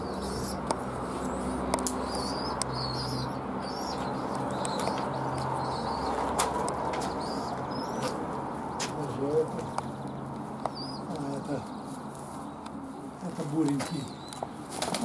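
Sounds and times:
high bird chirps: 1.2s - 6.4s, 7.0s - 8.2s, 9.8s - 12.6s
sharp clicks: 1.6s - 2.8s
pigeons flapping wings: 14.7s - 15.0s.

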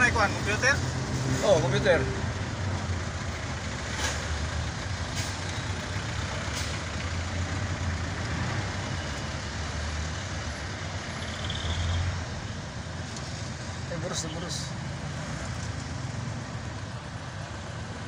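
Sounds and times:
large vehicle engine running: 0.0s - 11.6s.

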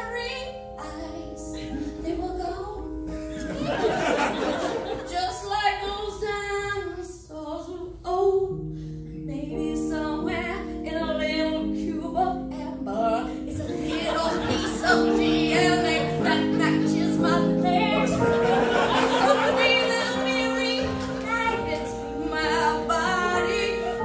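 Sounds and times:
sustained accompaniment chords: 11.6s - 24.0s.

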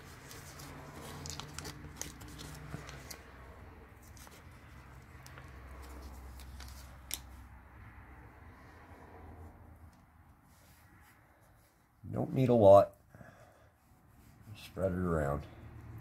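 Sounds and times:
paper packet crinkling: 0.0s - 3.3s.

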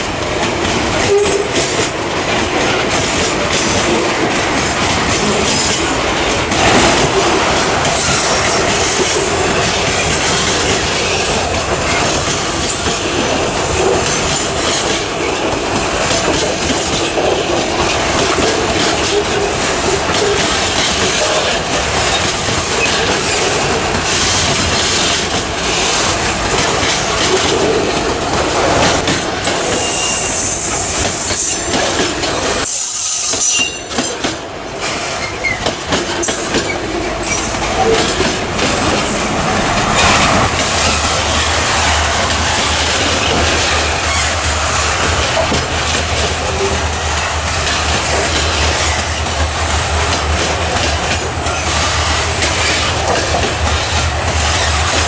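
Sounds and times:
train wheels clattering on rails: 0.0s - 55.0s
high wheel squeals: 29.5s - 31.7s.

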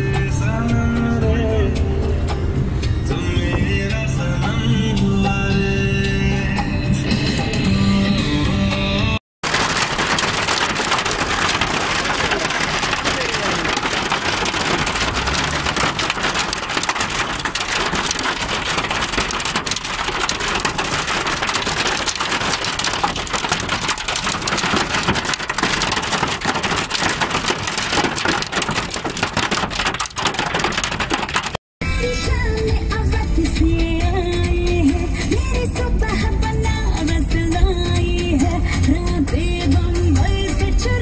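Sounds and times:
heavy rain on window glass: 9.4s - 31.6s.

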